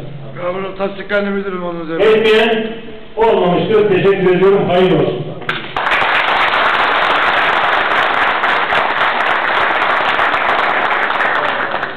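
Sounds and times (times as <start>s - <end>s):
audience applauding: 5.6s - 11.9s.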